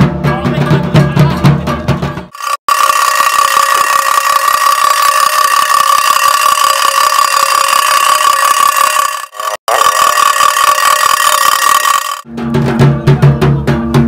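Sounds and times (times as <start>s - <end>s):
high-pitched tone: 2.3s - 12.3s.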